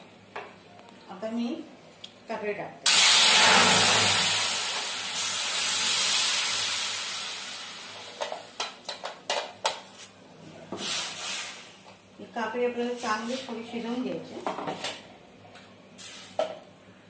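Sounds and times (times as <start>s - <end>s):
puree sizzling in hot pan: 2.9s - 8.7s.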